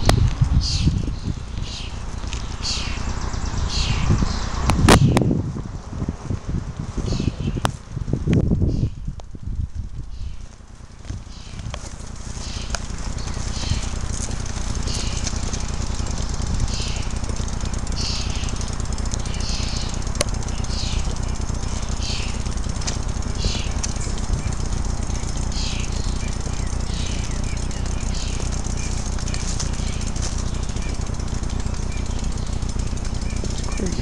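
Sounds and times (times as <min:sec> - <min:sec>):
wind buffeting microphone: 0:00.0 - 0:34.0
footsteps on grass and pavement: 0:10.3 - 0:19.5, 0:26.3 - 0:34.0.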